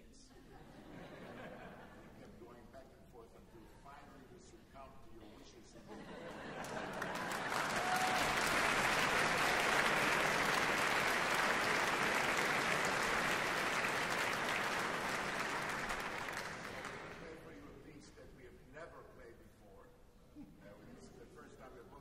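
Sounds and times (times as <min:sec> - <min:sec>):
audience applauding: 0:06.5 - 0:17.5.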